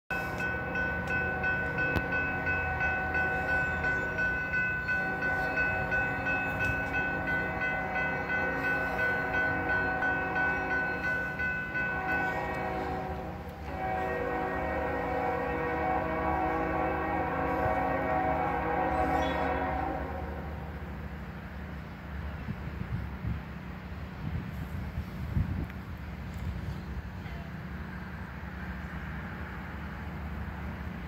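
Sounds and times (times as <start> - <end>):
locomotive air horn chord: 0.1 - 20.9.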